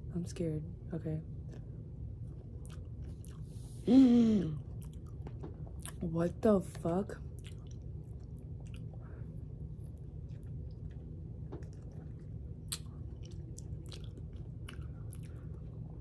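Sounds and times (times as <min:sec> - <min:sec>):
low steady hum: 0:00.0 - 0:16.0
person chewing berries: 0:01.4 - 0:06.0, 0:07.2 - 0:16.0
wet mouth clicks: 0:12.6 - 0:15.4.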